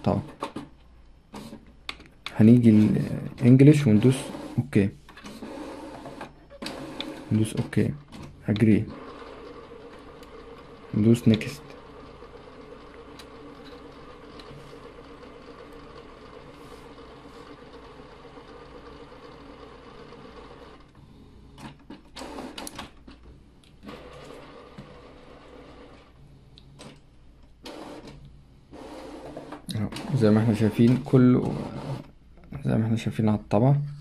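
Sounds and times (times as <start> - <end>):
printer motors whirring: 2.5 - 21.0, 21.6 - 22.9, 23.8 - 26.2, 27.6 - 32.1.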